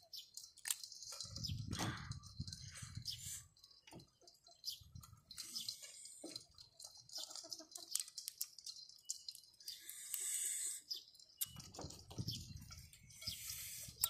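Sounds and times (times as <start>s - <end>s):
hiss: 9.8s - 10.9s.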